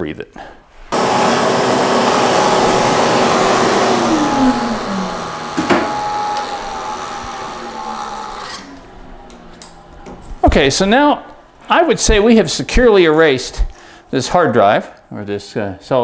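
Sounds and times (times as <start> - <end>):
shop vacuum running: 0.9 - 10.1
end mill grinding circuit board: 1.0 - 8.9.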